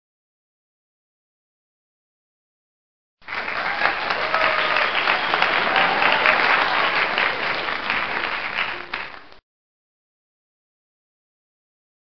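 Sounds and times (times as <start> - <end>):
crowd applauding: 3.2 - 9.4.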